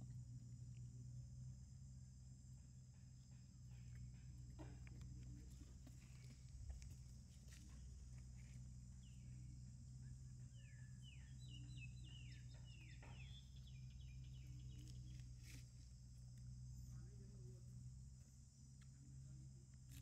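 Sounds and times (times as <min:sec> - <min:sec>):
low hum: 0:00.0 - 0:20.0.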